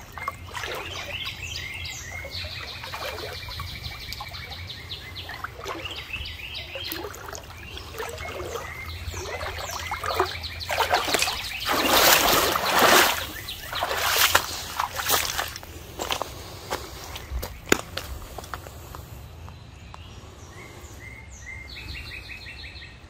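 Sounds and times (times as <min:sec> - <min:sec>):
water trickling: 0:00.0 - 0:16.2
footsteps splashing through water: 0:00.0 - 0:18.7
small birds chirping: 0:00.0 - 0:23.0.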